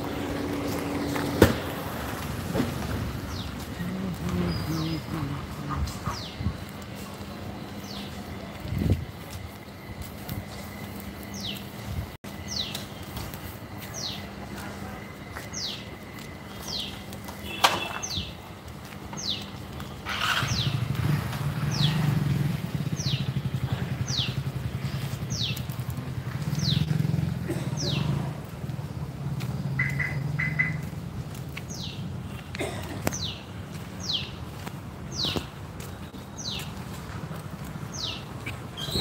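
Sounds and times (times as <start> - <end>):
motorcycle engine running: 0.0 - 6.4, 19.5 - 31.2.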